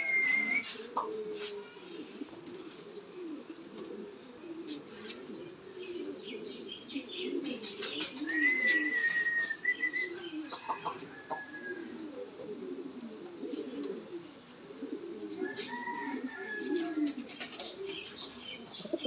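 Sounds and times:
pigeons cooing: 0.0s - 19.0s.

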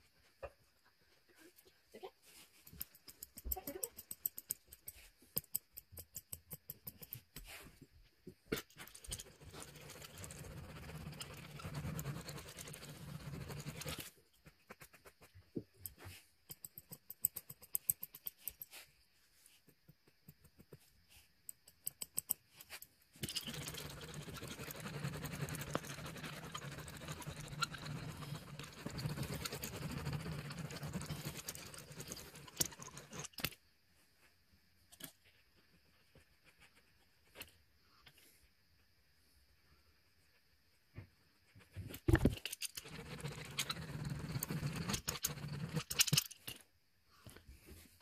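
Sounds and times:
spiked roller rasping on carpet: 8.9s - 16.4s, 22.6s - 33.3s, 42.7s - 46.0s.

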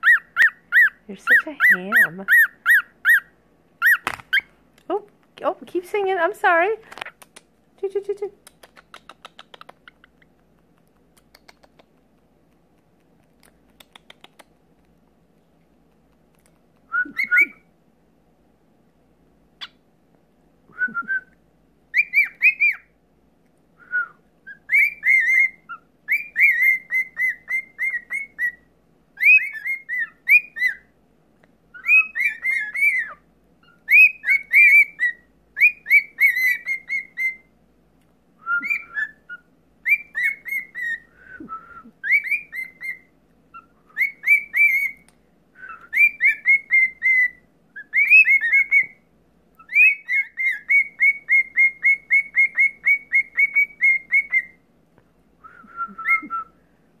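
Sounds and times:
cockatiels whistling: 0.0s - 4.5s, 16.9s - 17.7s, 21.9s - 22.9s, 24.0s - 30.9s, 31.7s - 37.5s, 38.4s - 45.0s, 45.6s - 49.0s, 49.6s - 54.6s, 55.4s - 56.5s.

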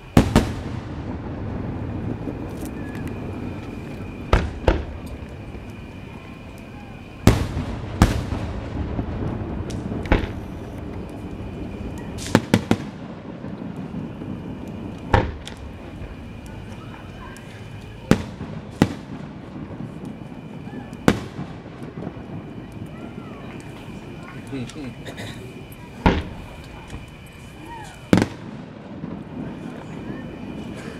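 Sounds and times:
fireworks bangs: 0.0s - 30.9s.

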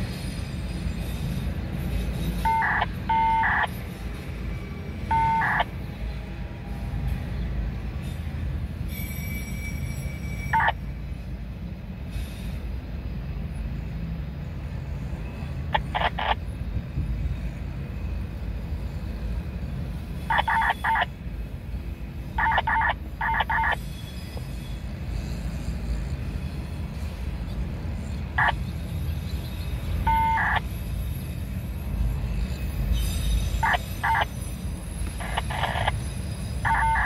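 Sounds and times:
train low rumble: 0.0s - 37.0s.

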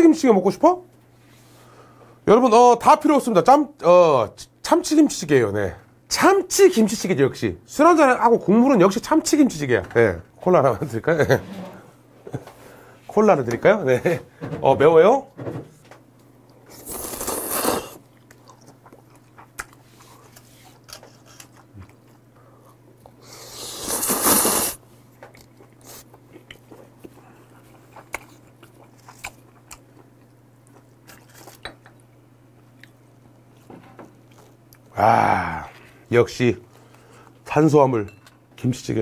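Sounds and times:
soft chewing and mouth clicks: 16.2s - 23.2s, 25.2s - 35.0s
man slurping noodles: 16.8s - 18.0s, 23.3s - 24.8s.

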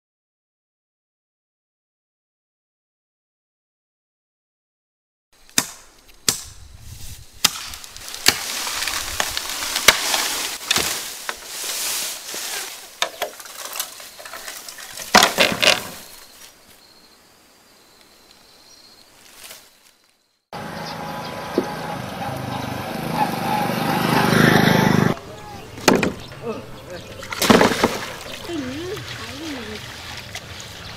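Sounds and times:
outdoor background noise: 5.4s - 30.9s
blade chopping bamboo: 5.6s - 6.5s, 7.4s - 11.5s
rustling and crackling bamboo stems: 5.6s - 16.8s, 19.0s - 20.3s, 25.7s - 30.9s.

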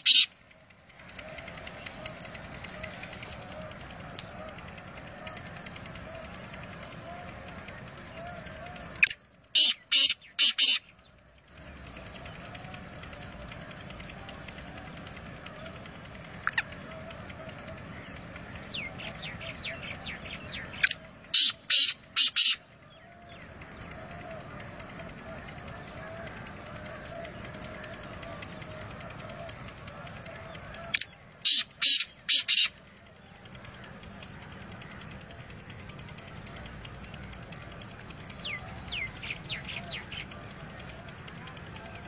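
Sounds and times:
bird harsh rasping call: 0.0s - 0.3s, 7.0s - 10.9s, 18.7s - 22.6s, 30.6s - 32.8s
faint ticks: 0.9s - 9.2s.

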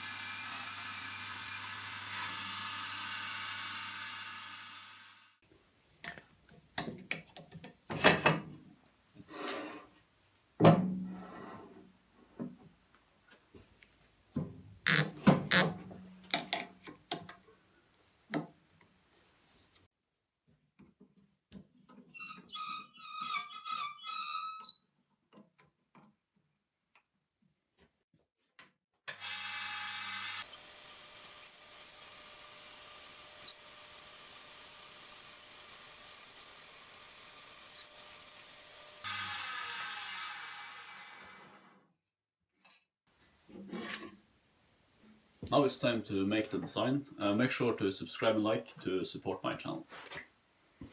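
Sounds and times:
bandsaw running: 0.0s - 5.4s, 14.9s - 15.6s, 29.1s - 41.7s.

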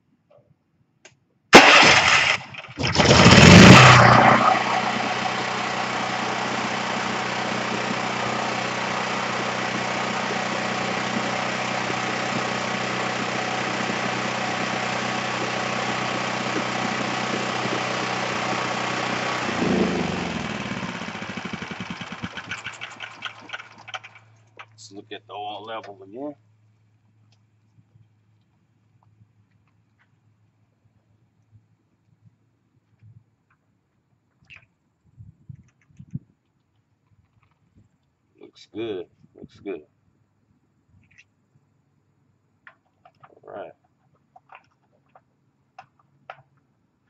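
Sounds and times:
electric starter cranking: 1.6s - 24.4s
generator engine running: 1.6s - 24.8s.

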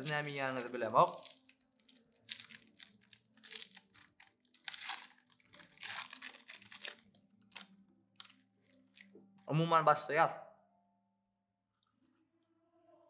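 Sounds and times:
candy wrapper crinkling: 0.0s - 9.1s.

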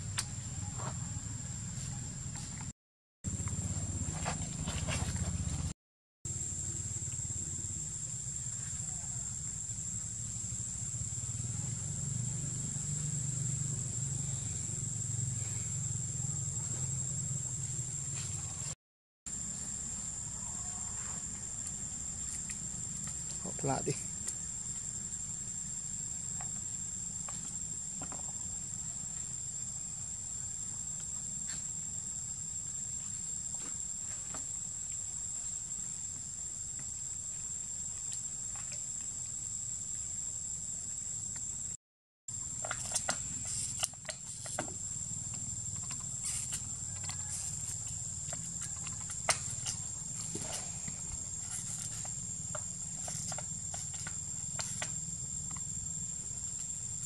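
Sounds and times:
insects droning: 0.0s - 2.7s, 3.3s - 57.0s.

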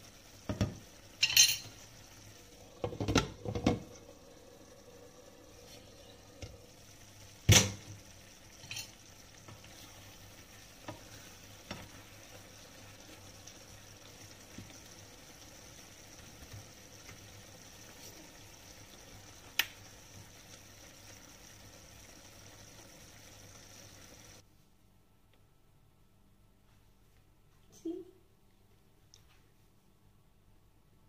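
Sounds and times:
simmering pan hiss: 0.0s - 24.4s.

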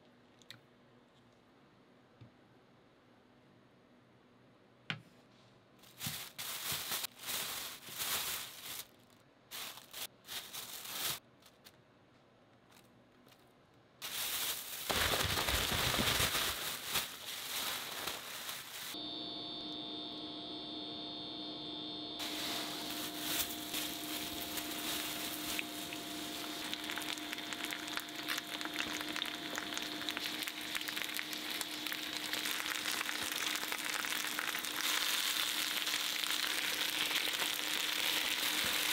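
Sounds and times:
plastic bag crinkling and shaking: 5.8s - 11.6s, 14.0s - 19.0s, 22.2s - 38.9s
induction hob hum and whine: 18.7s - 38.9s
food sizzling in oil: 22.2s - 38.9s.

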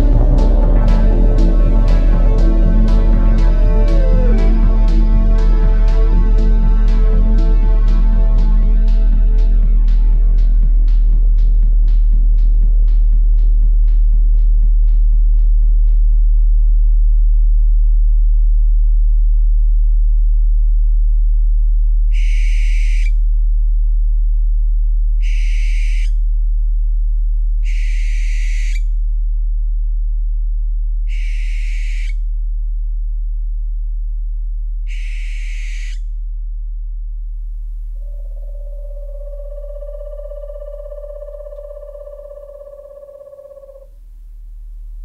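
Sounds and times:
deep meditation tone: 0.0s - 13.1s, 36.2s - 45.0s
owl screeching: 22.1s - 23.2s, 25.2s - 26.2s, 27.6s - 28.9s, 31.1s - 32.2s, 34.9s - 36.1s, 38.0s - 44.0s.

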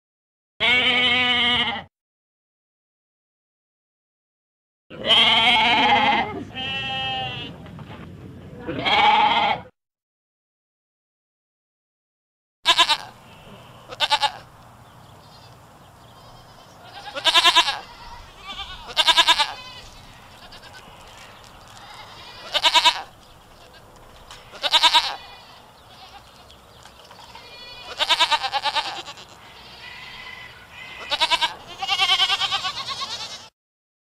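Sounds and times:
goats bleating: 0.6s - 1.9s, 4.9s - 7.5s, 8.6s - 9.7s, 12.7s - 14.5s, 15.3s - 33.5s.

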